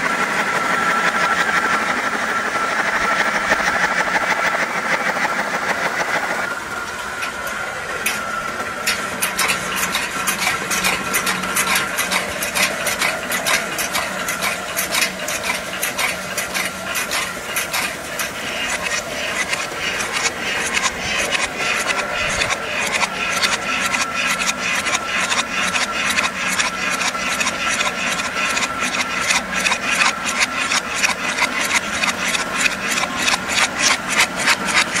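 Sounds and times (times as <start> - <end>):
machine humming: 0.0 - 35.0
fast regular clatter of knocks: 8.8 - 35.0.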